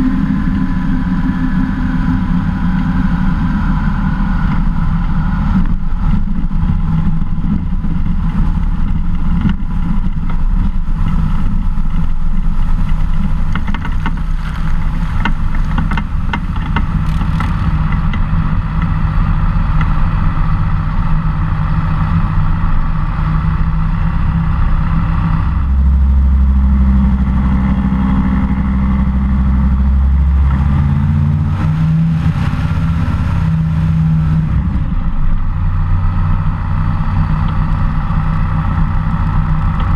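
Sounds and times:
seaplane engine running: 0.0 - 39.9
water rushing along hull: 0.0 - 39.9.

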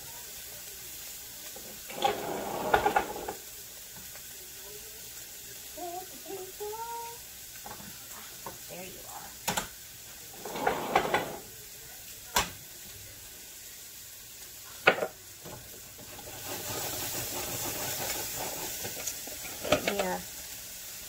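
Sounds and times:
spice shaking hiss: 15.9 - 21.0.

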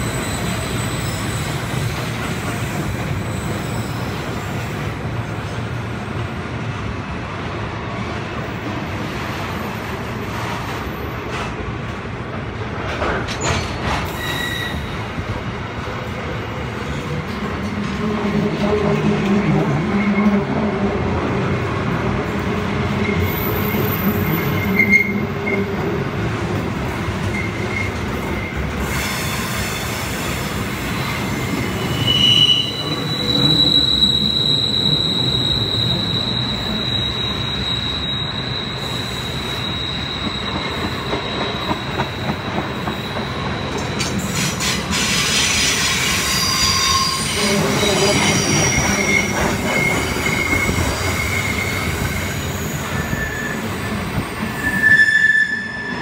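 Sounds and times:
high metal brake squeals: 0.0 - 4.5, 13.4 - 15.0, 23.0 - 25.7, 27.3 - 56.0
train wheels rumbling on rail: 0.0 - 56.0.

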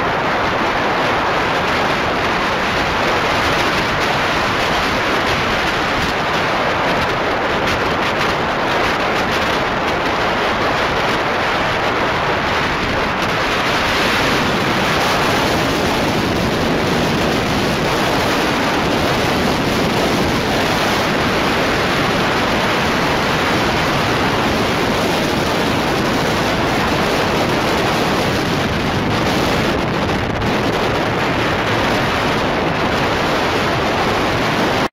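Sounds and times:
wind buffeting microphone: 0.0 - 34.9.

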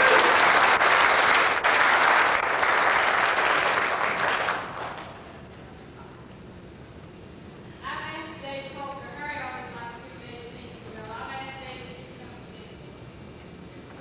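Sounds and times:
congregation applauding: 0.0 - 5.7.

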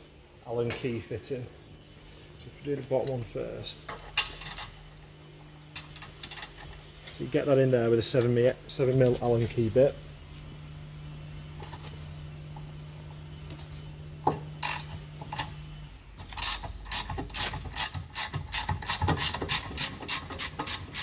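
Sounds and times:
ratchet clicking: 16.3 - 21.0.

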